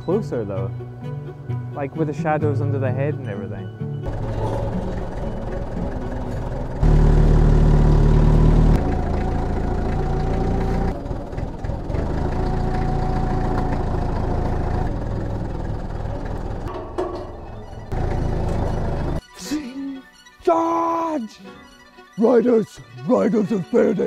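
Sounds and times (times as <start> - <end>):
heavy engine idling: 4.0 - 19.2.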